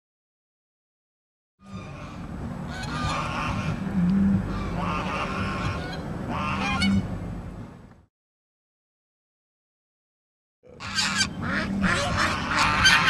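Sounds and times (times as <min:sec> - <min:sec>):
waterfowl calling: 0:01.6 - 0:07.1, 0:10.7 - 0:13.0
steady low hum: 0:01.6 - 0:08.1, 0:10.7 - 0:13.0.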